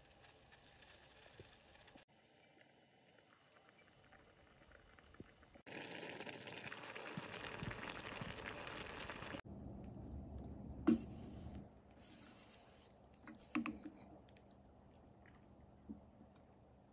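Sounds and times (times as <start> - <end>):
sauce bubbling: 3.0 - 11.7.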